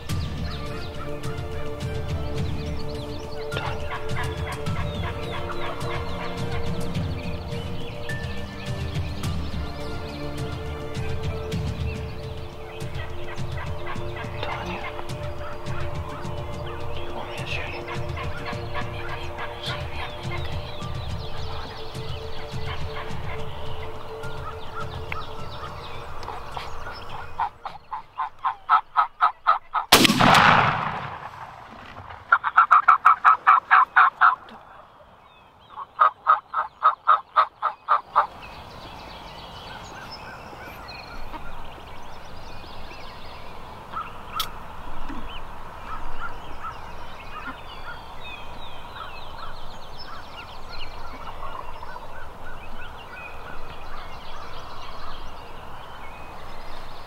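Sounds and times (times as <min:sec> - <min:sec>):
faint bird calls: 0:00.0 - 0:29.9, 0:30.8 - 0:57.0
turkey gobbling: 0:03.4 - 0:07.5, 0:12.7 - 0:35.0, 0:35.7 - 0:38.4, 0:39.6 - 0:41.8, 0:43.9 - 0:48.3, 0:48.9 - 0:55.2.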